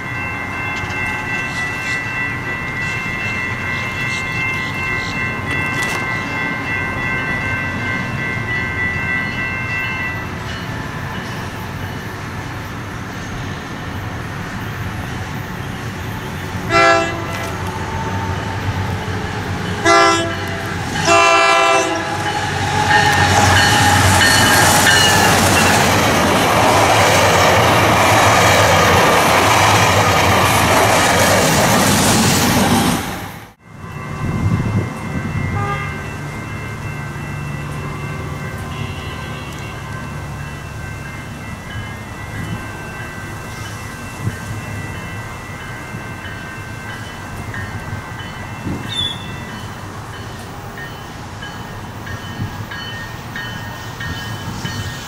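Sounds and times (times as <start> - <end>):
diesel locomotive horn blasts: 16.6 - 18.4, 19.8 - 25.1, 35.4 - 36.1, 38.5 - 40.0.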